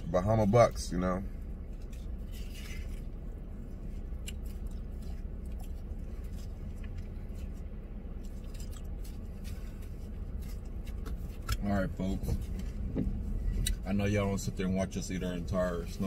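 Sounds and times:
steady low rumble: 0.0 - 16.0
chewing: 1.4 - 11.7.

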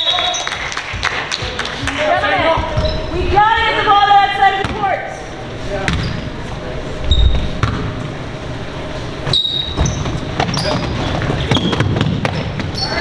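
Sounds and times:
basketball bouncing on wood floor: 2.5 - 3.0, 9.8 - 12.8
sneaker squeaks: 2.5 - 3.2, 5.8 - 6.4, 7.0 - 7.9, 9.2 - 13.0.

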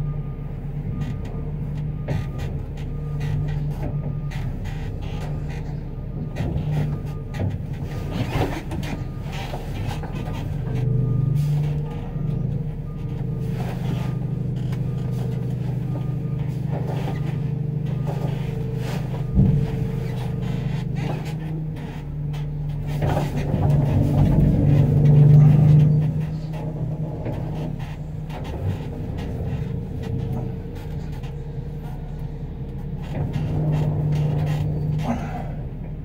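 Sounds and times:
truck engine running: 0.0 - 36.0
backup alarm beeping: 10.2 - 22.7.

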